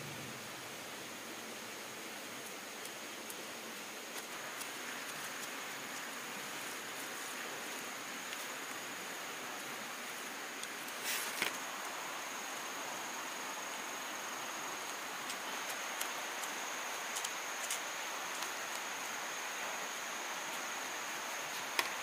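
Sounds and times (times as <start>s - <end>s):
broad hiss: 0.0s - 22.0s
insect drone: 0.0s - 22.0s
taps and scrapes in soil: 4.1s - 6.1s, 15.2s - 18.9s, 21.5s - 22.0s.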